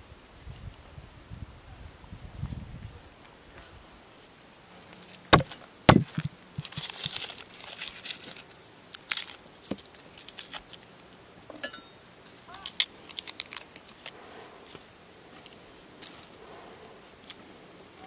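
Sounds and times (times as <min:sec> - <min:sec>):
papery skins crinkling: 0:06.1 - 0:11.0, 0:12.5 - 0:14.8
garlic bulb cracking: 0:08.9 - 0:10.8.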